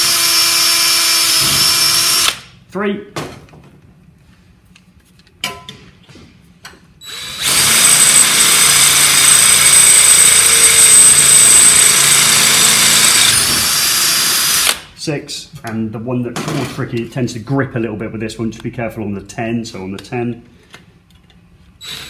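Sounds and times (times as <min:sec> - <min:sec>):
cordless drill whining: 0:00.0 - 0:02.4, 0:07.0 - 0:14.8.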